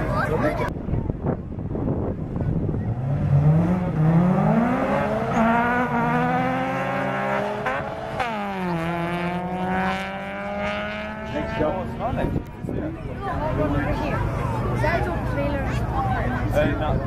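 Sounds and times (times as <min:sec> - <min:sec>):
racing car engine accelerating: 0:02.7 - 0:12.4.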